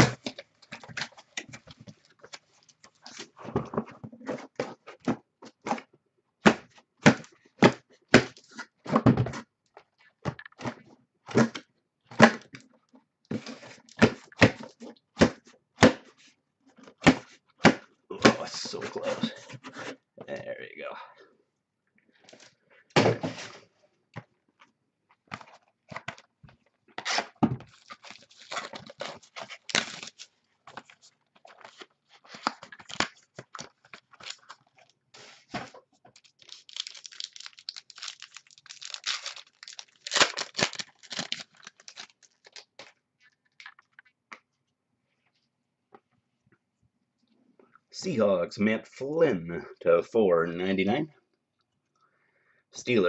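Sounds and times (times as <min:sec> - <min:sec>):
packaging tearing and crinkling: 0:27.0 - 0:44.0.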